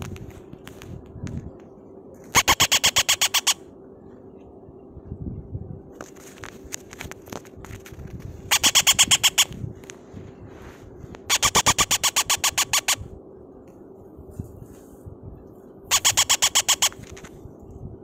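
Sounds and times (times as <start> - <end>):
parrot chick begging calls: 2.3 - 3.6, 8.5 - 9.6, 11.3 - 13.0, 15.9 - 17.1.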